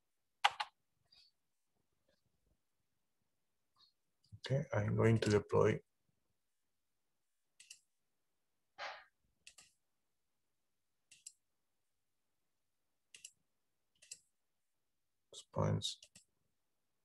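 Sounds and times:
computer mouse clicks: 7.6s - 7.9s, 9.4s - 9.8s, 11.1s - 11.4s, 13.1s - 13.4s, 14.0s - 14.3s, 16.0s - 16.3s.

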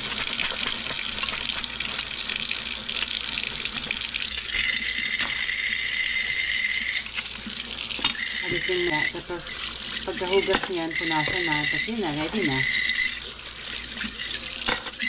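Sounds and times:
faucet running into sink: 0.0s - 15.0s
glass jars scrubbed: 8.4s - 13.1s.

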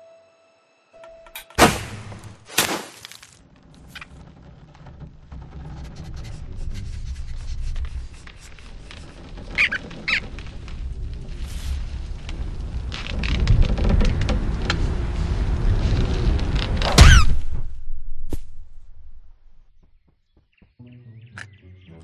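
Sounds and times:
sharp cartoon thunks: 1.4s - 3.3s, 16.9s - 19.3s
faint ticks and creaks: 3.4s - 16.9s
low rumble: 3.4s - 19.8s
short squeaks: 4.8s - 11.8s, 16.7s - 17.5s.

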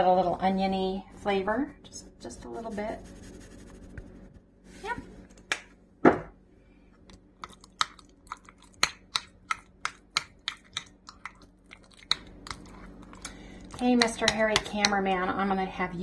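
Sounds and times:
loud knock: 6.0s - 6.3s.

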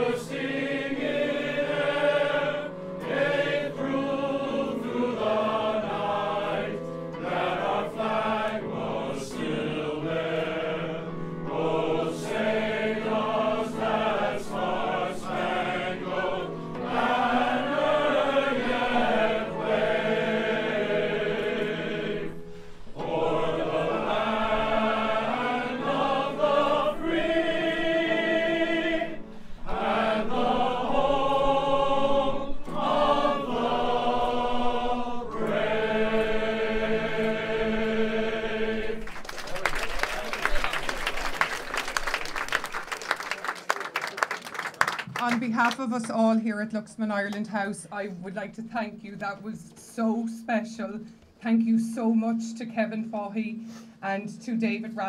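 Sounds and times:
men's choir singing in harmony: 0.0s - 39.2s.

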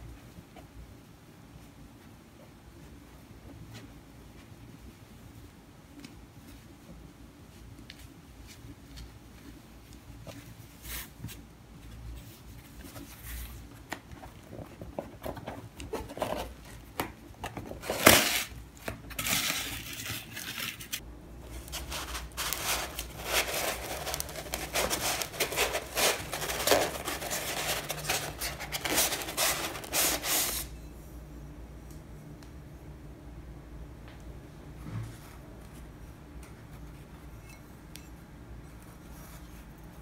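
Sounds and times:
fabric wrap rustling: 19.2s - 30.7s
foam insert rubbing: 21.6s - 30.7s
cardboard box opening: 21.8s - 30.6s.

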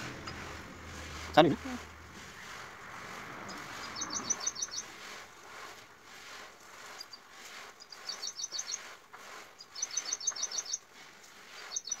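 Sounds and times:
bird high chirps: 3.5s - 4.9s, 7.8s - 8.8s, 9.6s - 10.8s, 11.7s - 12.0s.

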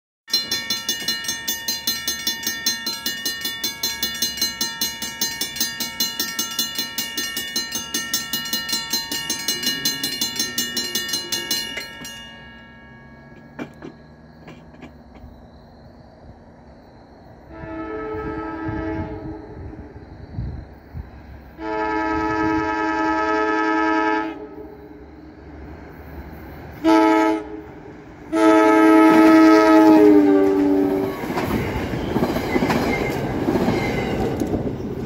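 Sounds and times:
railroad crossing bell ringing: 0.3s - 14.6s, 28.3s - 34.9s.

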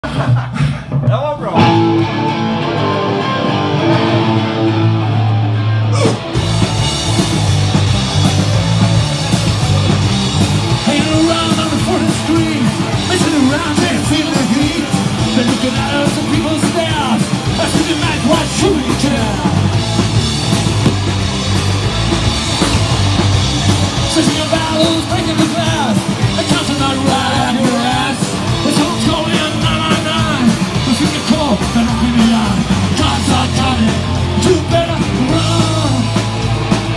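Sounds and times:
drums: 0.0s - 36.9s
punk rock band playing live: 0.0s - 36.9s
low guitar riff: 1.6s - 36.9s
lead vocals: 5.3s - 6.9s, 10.6s - 21.1s, 23.4s - 36.9s.

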